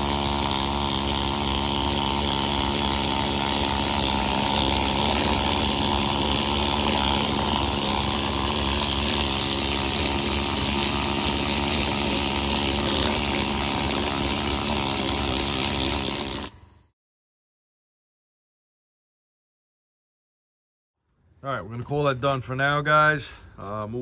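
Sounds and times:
pneumatic needle scaler hammering metal: 0.0 - 16.8.

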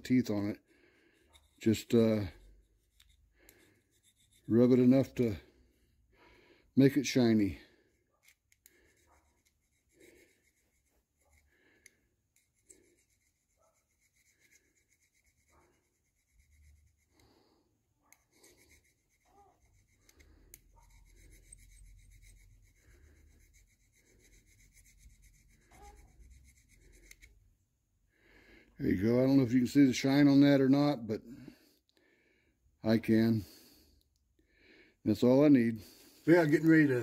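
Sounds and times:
fine file rubbing on brass: 1.1 - 5.4, 7.3 - 27.4.

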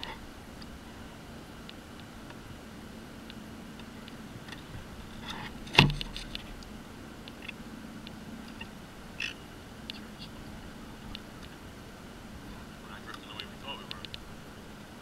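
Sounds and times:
faint clicks and ticks: 3.2 - 10.3, 11.0 - 11.6, 13.0 - 14.3
sharp knock: 5.8 - 6.2.

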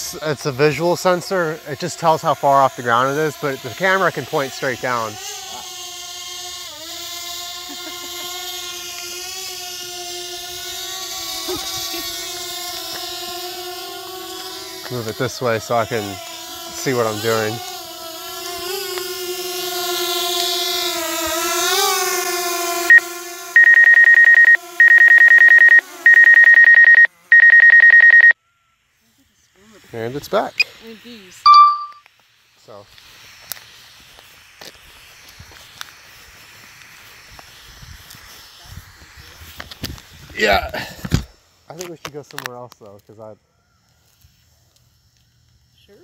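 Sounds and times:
drone propellers whining: 22.8 - 28.3
rapid high electronic beeps: 23.6 - 28.4, 31.5 - 32.0.

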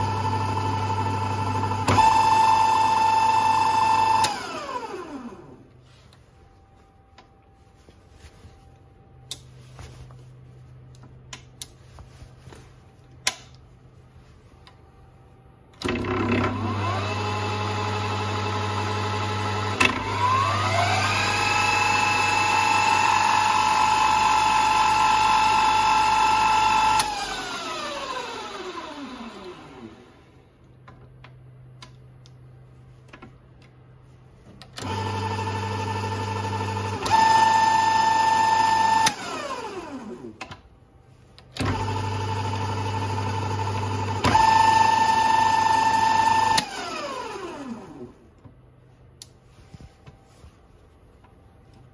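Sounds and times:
lathe motor whine: 0.0 - 5.7, 15.8 - 30.2, 34.8 - 40.3, 41.6 - 48.2.

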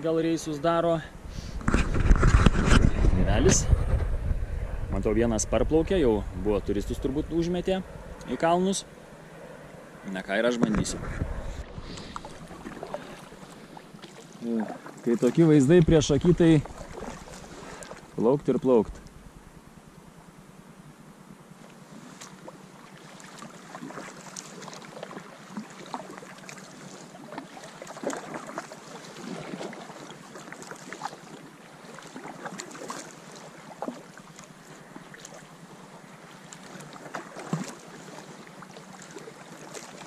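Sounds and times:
paddle splashing in water: 10.8 - 18.2, 21.8 - 40.0.

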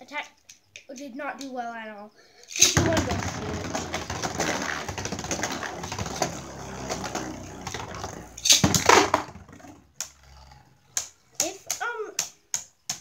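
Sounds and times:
clattering burst: 2.6 - 9.9
spinning tops whirring and grinding: 2.6 - 10.2.

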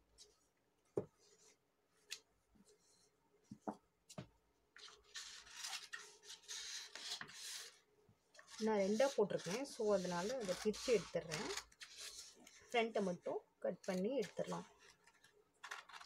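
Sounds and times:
hand rubbing on paper: 8.5 - 12.3.

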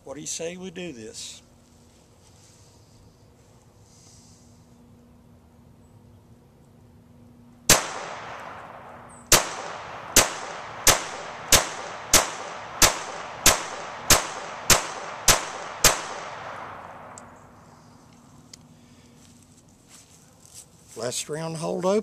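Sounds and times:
pistol shots with ringing echo: 7.7 - 17.4.

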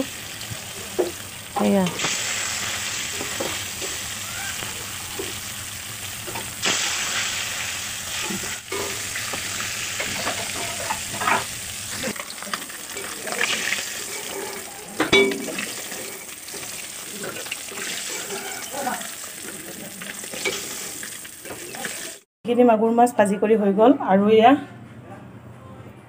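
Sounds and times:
fish sizzling in hot oil: 0.0 - 22.3
spatula scraping and knocking pan: 3.1 - 5.4, 8.2 - 11.6.

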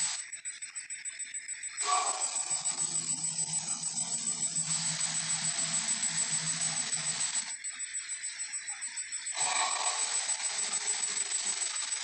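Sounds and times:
cartoon dinosaur roar: 1.8 - 2.4.

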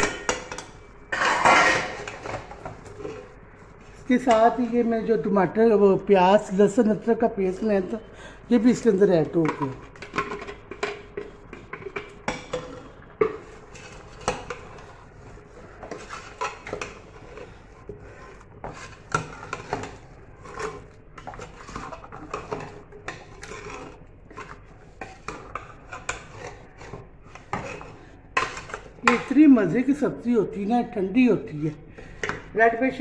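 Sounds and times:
ladle scraping a metal pot: 0.0 - 4.5, 9.4 - 29.7.

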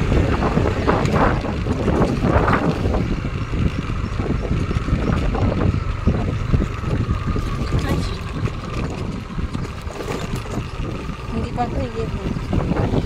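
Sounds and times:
scooter engine running: 0.0 - 13.0
wind rumbling on microphone: 0.0 - 13.0.

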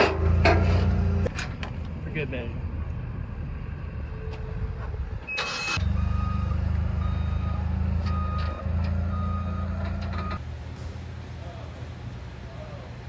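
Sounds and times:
forklift engine running: 2.7 - 13.0
reversing alarm beeping: 5.2 - 10.4.

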